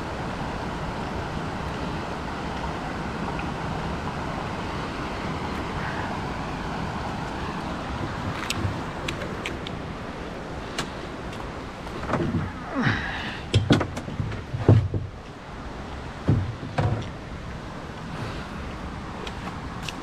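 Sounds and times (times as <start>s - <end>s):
water rushing: 0.0s - 20.0s
hollow thuds against a boat: 13.5s - 15.2s, 16.2s - 17.2s.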